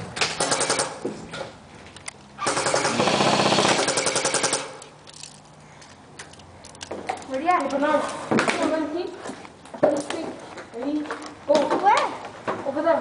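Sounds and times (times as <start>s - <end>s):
airsoft rifle firing bursts: 0.4s - 1.0s, 2.4s - 4.8s.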